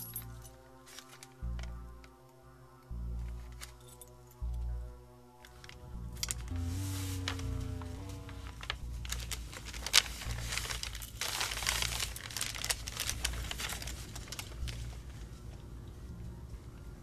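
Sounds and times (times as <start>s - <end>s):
paper bag crinkling: 6.3s - 15.6s.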